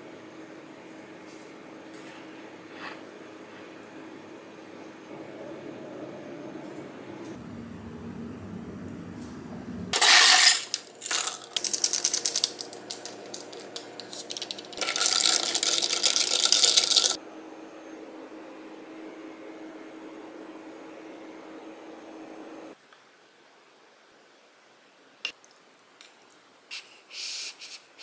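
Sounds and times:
ice cubes clinking in glass: 10.0s - 17.2s
spoon stirring ice rattling: 10.0s - 17.2s.

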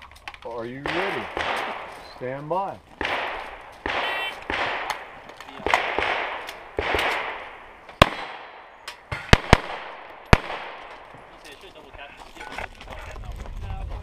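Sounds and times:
distant echoing gunshots: 0.7s - 2.3s, 2.9s - 11.4s
sharp pistol shots: 0.8s - 2.0s, 3.0s - 11.1s.

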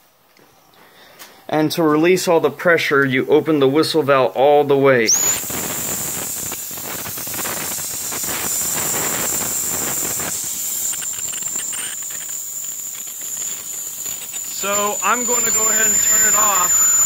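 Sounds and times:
hiss of escaping steam: 5.1s - 17.0s
steam whistle blowing: 5.1s - 17.0s.

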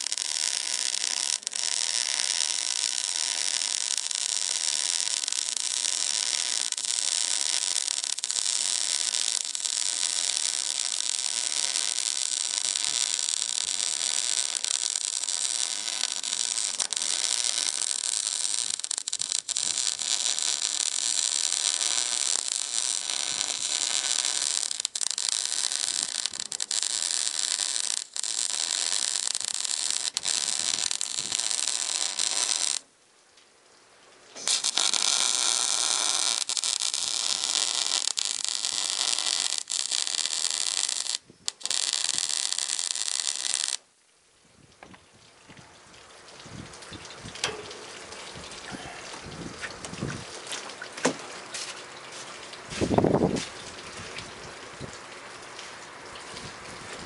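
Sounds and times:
arc welding crackling hiss: 0.0s - 32.8s, 34.4s - 43.9s, 51.6s - 53.6s.

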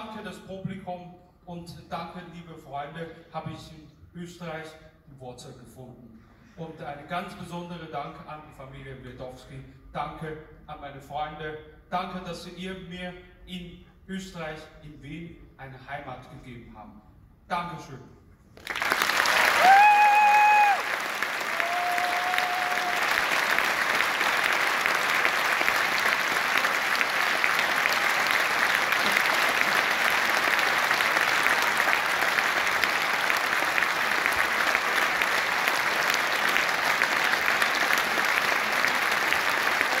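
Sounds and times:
audience applauding: 18.6s - 40.0s.

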